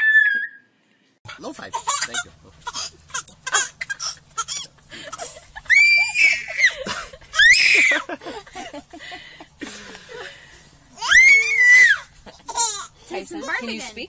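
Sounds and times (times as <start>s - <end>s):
baby squealing: 0.0s - 0.7s, 1.7s - 8.0s, 11.0s - 13.6s.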